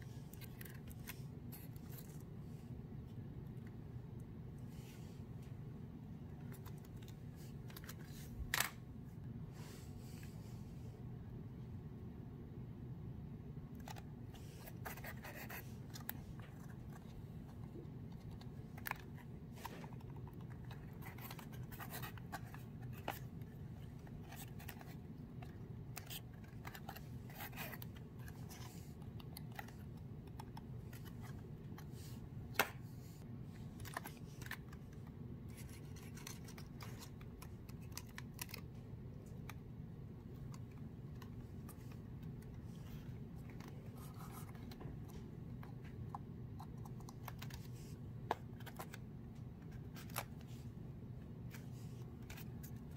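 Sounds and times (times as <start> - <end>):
light scratching of puzzle model: 0.0 - 2.8, 13.8 - 39.6, 40.2 - 50.8, 51.4 - 52.9
steady low hum: 0.0 - 52.9
small clicks of puzzle handling: 33.7 - 39.6.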